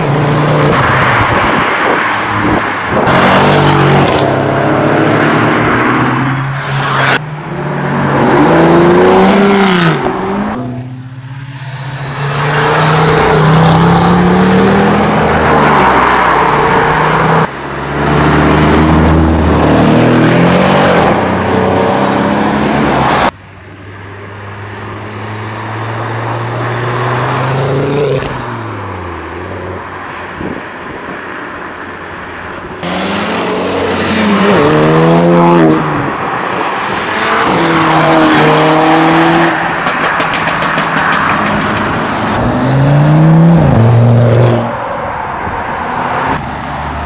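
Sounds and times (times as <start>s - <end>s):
cars accelerating hard: 0.0s - 23.4s, 32.8s - 44.8s.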